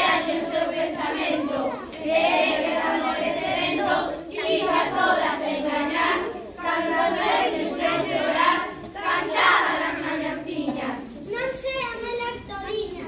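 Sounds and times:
child singing: 0.0 - 13.0.

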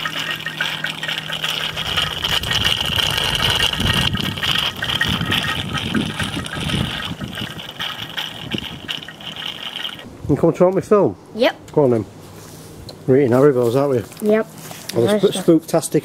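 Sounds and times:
gurgling: 0.0 - 10.0.

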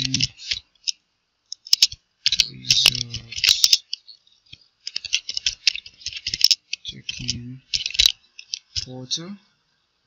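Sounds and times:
computer keyboard typing: 0.0 - 0.6, 1.6 - 9.0.

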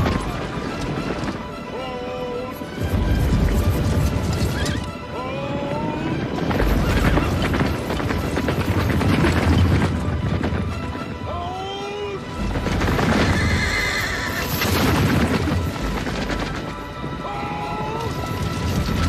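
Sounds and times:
film music: 0.0 - 19.0
horses galloping: 5.6 - 19.0
horse whinny: 13.0 - 14.8.

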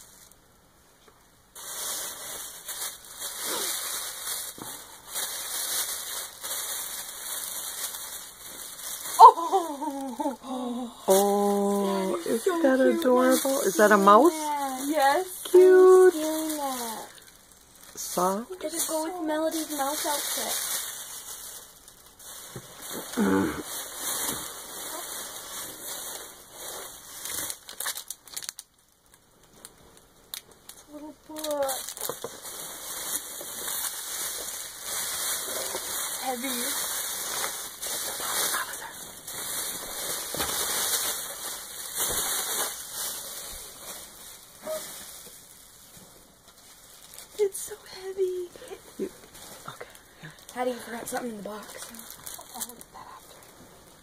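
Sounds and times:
tissue paper rustling: 1.5 - 28.6, 30.6 - 54.0
person exclaiming: 9.2 - 13.7, 23.2 - 23.6.

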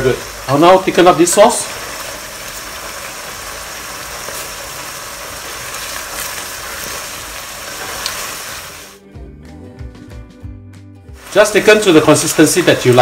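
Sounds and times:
sauce bubbling in a wok: 0.0 - 9.0.

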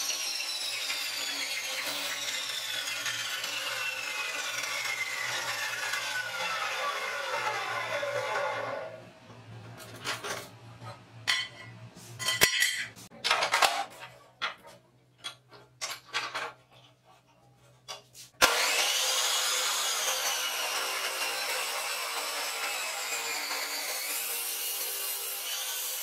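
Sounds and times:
cut-off saw whine running down: 18.4 - 25.8.

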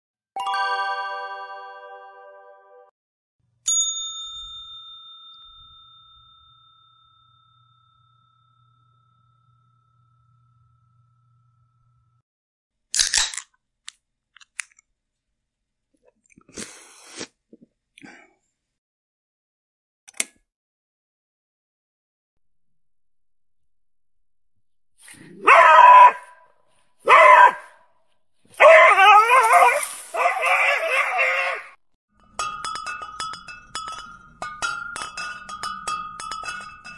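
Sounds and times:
service bell ding: 3.7 - 9.7
dog barking: 25.2 - 26.4, 27.0 - 27.8, 28.6 - 31.7.

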